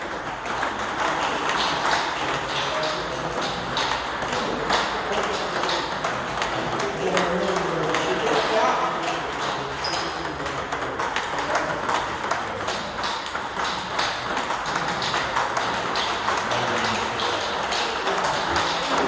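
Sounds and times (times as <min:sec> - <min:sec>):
table tennis ball clicking: 0:03.1 - 0:16.5.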